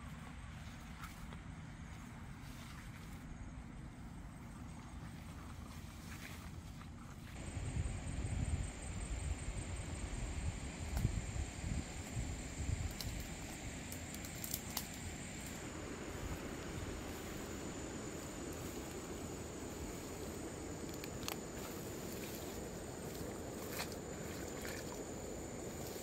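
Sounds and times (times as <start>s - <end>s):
brush rustling through grass: 4.7s - 26.0s
high insect drone: 7.3s - 26.0s
wind rumble on microphone: 7.4s - 14.2s
twigs snapping: 12.8s - 15.7s, 20.8s - 22.4s.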